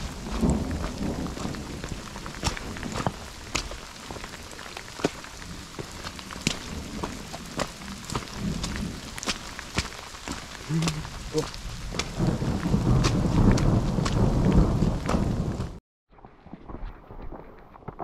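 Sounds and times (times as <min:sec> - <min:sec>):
low thunder rumble: 0:00.0 - 0:03.8, 0:10.7 - 0:15.8
heavy rain falling: 0:00.0 - 0:15.8
raindrops ticking close by: 0:00.0 - 0:15.8.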